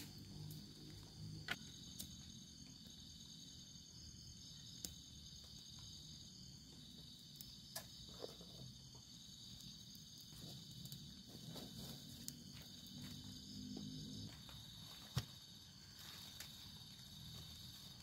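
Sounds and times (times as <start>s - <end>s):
twig fire snapping: 0.0s - 2.3s, 7.3s - 13.2s
night insects chirping: 0.0s - 18.0s.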